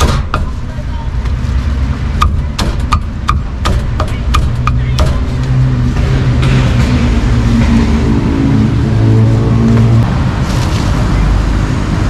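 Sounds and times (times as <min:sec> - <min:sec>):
cleaver chopping meat: 0:00.0 - 0:00.6, 0:02.2 - 0:05.3
traffic noise: 0:00.0 - 0:12.0
vehicle engine: 0:00.0 - 0:12.0.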